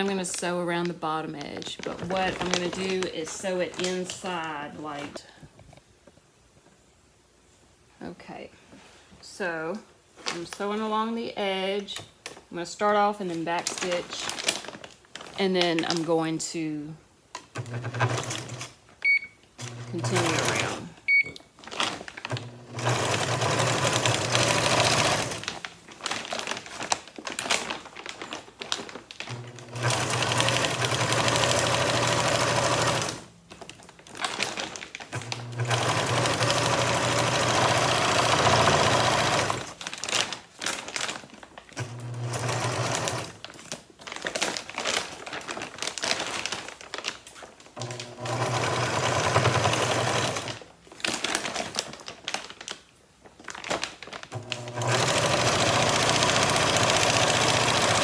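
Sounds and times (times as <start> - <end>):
sewing machine stitching: 17.5 - 18.7, 19.6 - 20.9, 22.3 - 25.6, 29.3 - 33.2, 35.1 - 39.8, 41.8 - 43.4, 47.8 - 50.6, 54.3 - 58.0.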